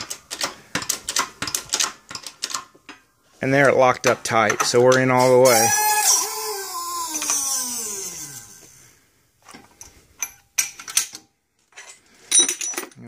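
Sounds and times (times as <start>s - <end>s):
hydraulic press whine: 5.2s - 9.0s.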